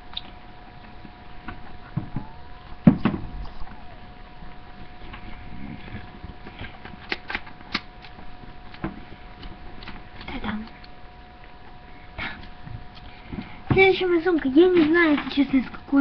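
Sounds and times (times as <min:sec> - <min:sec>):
faint steady whine: 0:00.0 - 0:16.0
loud thump: 0:02.0 - 0:03.4
handling rustles and knocks: 0:12.5 - 0:16.0.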